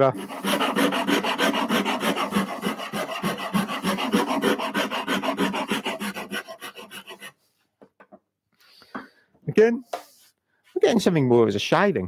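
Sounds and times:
saw rasp filing wood: 0.0 - 7.4.

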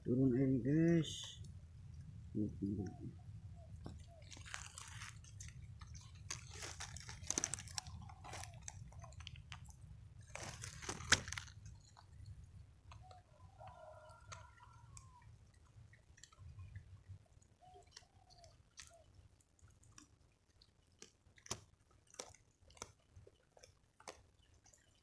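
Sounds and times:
wet squelching in mud and water: 3.6 - 12.4, 17.6 - 25.0.

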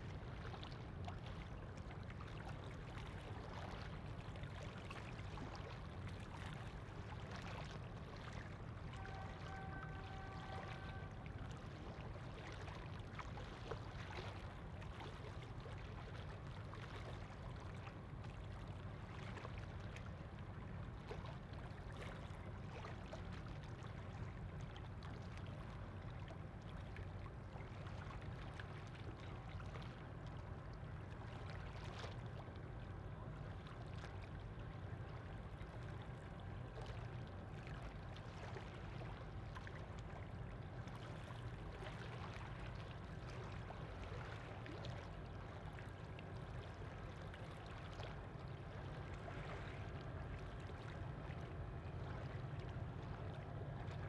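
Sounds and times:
faint steady hum: 0.0 - 54.0
water lapping: 0.0 - 54.0
ship engine rumble: 8.8 - 12.2.

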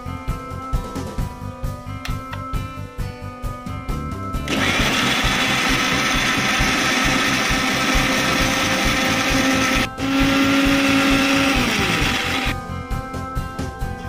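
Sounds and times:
mixer grinder motor running: 4.5 - 12.6.

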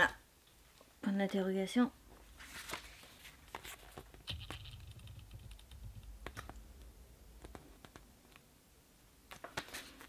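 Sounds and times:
paper rustling: 2.3 - 6.5, 9.4 - 10.0.

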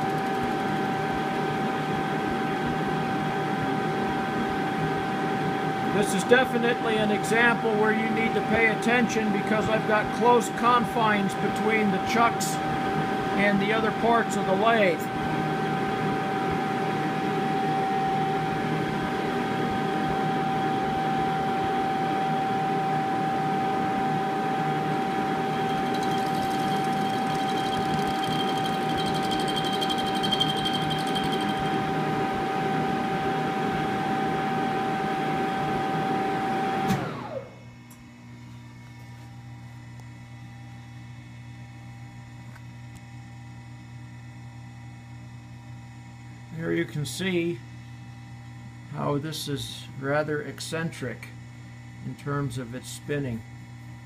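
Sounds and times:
lathe machine whine: 0.0 - 37.5
low steady hum: 23.3 - 35.0.

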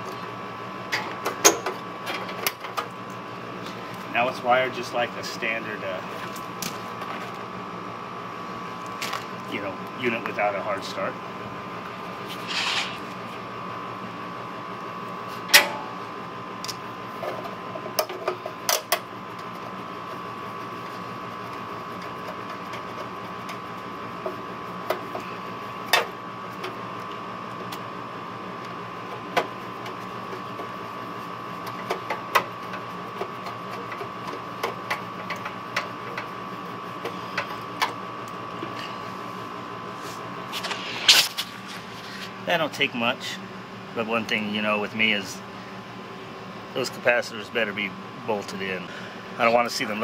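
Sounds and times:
steady high hum: 0.0 - 31.9, 32.6 - 50.0
clicks and taps of wiring work: 31.6 - 36.3.

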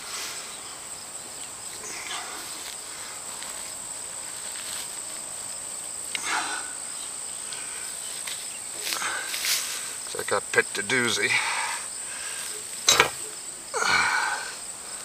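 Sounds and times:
insects singing: 0.0 - 15.0
hands scraping soil and grass: 1.7 - 5.3, 7.5 - 10.0.

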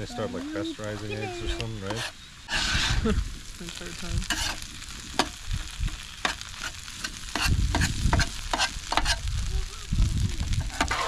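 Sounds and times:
food sizzling: 0.0 - 11.0
metal spatula scraping griddle: 1.1 - 3.1, 4.2 - 5.3, 6.2 - 9.3, 10.6 - 11.0.

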